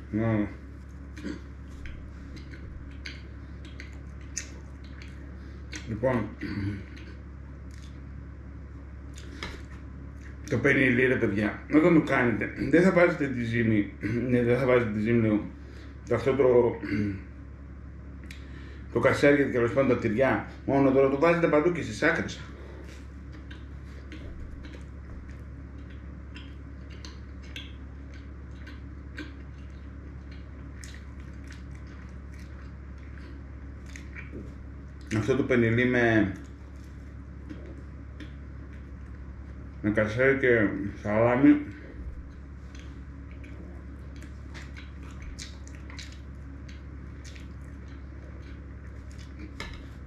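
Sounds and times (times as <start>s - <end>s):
steady low hum: 0.0s - 50.0s
close-miked chewing: 0.6s - 6.0s, 6.8s - 8.2s, 22.4s - 35.4s, 36.2s - 39.8s, 41.6s - 50.0s.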